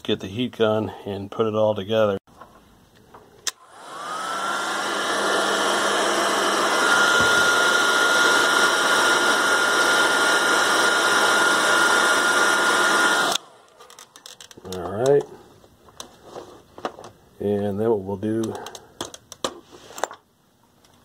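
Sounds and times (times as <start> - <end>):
heat gun fan whine: 3.4 - 14.8.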